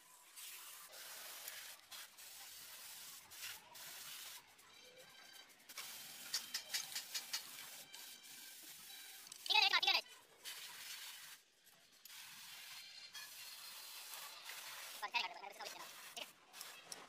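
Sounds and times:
metal tool clicks and scrapes: 0:05.3 - 0:08.0.

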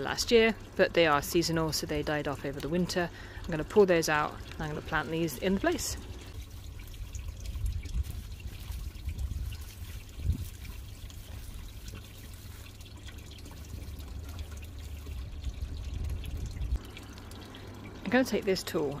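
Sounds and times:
water trickling in pond: 0:00.0 - 0:19.0
low rumble: 0:13.1 - 0:17.2.

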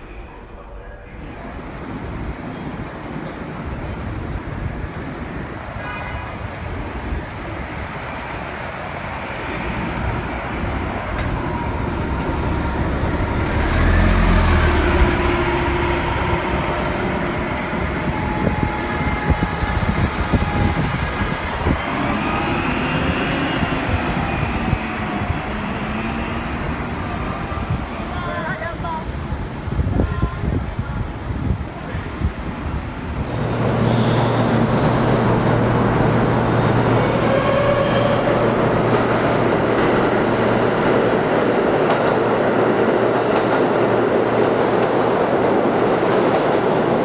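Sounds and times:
city street traffic: 0:00.0 - 0:47.0
bus drivetrain whine: 0:08.4 - 0:27.0
diesel bus engine rumble: 0:09.8 - 0:21.0.

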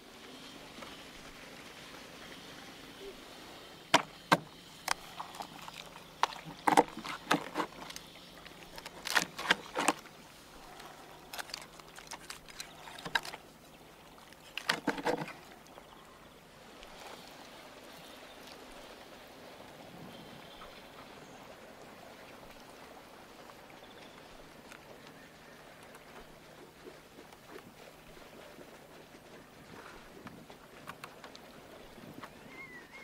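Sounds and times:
sharp clicks snaps and crackles: 0:06.2 - 0:10.0, 0:11.3 - 0:13.4.

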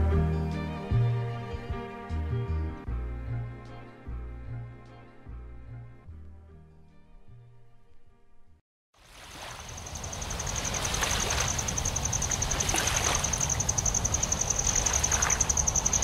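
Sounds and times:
background music: 0:00.0 - 0:08.6.

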